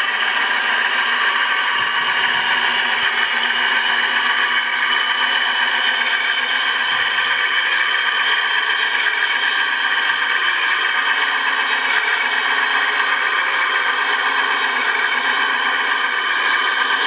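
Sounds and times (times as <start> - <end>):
model truck motor whirring: 0.0 - 17.0.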